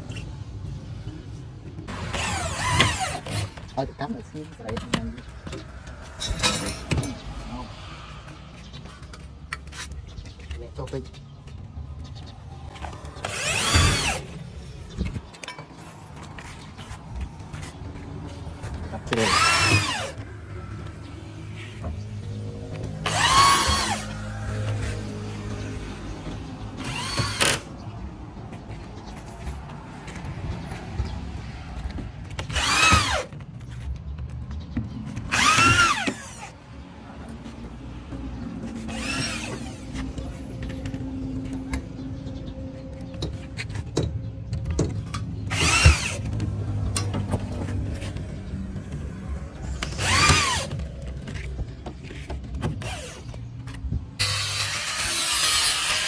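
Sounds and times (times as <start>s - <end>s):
electric drill driving screws: 2.0s - 3.5s, 13.2s - 14.3s, 19.2s - 20.2s, 23.0s - 24.2s, 26.8s - 27.7s, 32.5s - 33.3s, 35.3s - 36.5s, 38.9s - 39.8s, 45.5s - 46.3s, 49.8s - 50.7s, 54.2s - 56.0s
electric drill motor whine: 13.2s - 14.2s, 23.0s - 24.0s, 32.5s - 33.2s, 35.3s - 36.5s, 45.5s - 46.2s, 50.0s - 50.7s.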